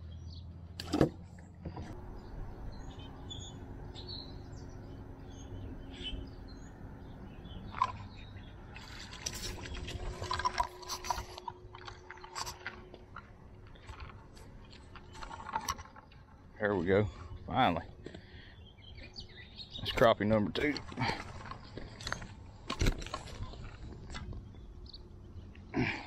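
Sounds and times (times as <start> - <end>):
faint bird chirps: 2.0 - 8.6
water splashing: 7.7 - 12.8.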